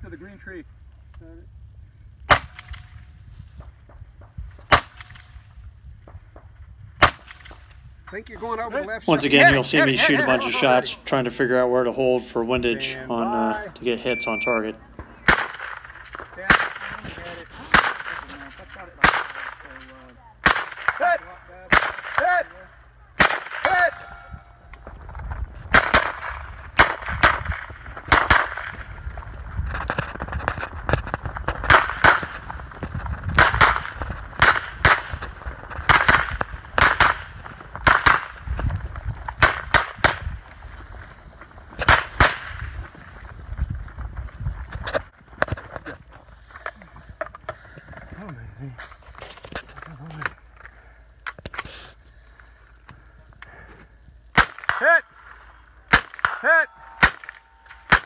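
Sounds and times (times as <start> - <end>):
rifle shots: 2.3 - 3.0, 4.7 - 5.4, 7.0 - 7.6, 15.2 - 17.0, 17.7 - 18.4, 19.0 - 19.7, 20.4 - 22.4, 23.2 - 24.2, 25.7 - 28.9, 31.6 - 32.5, 33.3 - 38.5, 39.3 - 40.4, 41.8 - 42.8, 54.3 - 54.9, 55.9 - 58.0.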